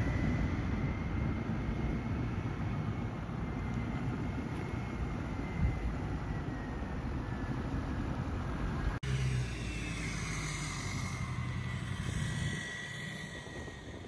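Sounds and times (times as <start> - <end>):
diesel engine rumble: 0.0 - 14.0.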